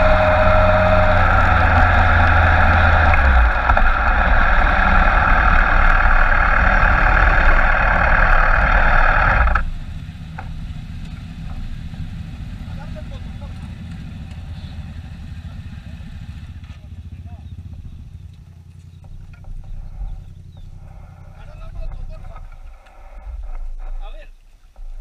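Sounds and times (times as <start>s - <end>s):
wind rush over camera: 0.0s - 9.9s
motorcycle engine running: 0.0s - 25.0s.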